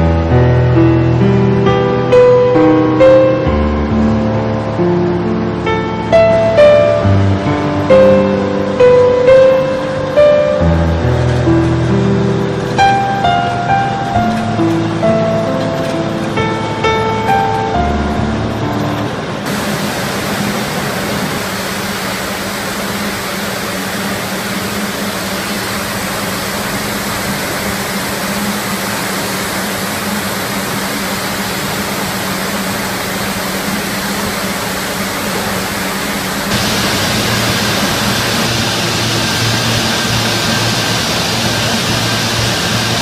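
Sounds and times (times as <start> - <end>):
steady low hum: 3.5 - 43.0
twisting machines running: 9.3 - 43.0
whirring hiss of spinning spindles: 19.5 - 43.0.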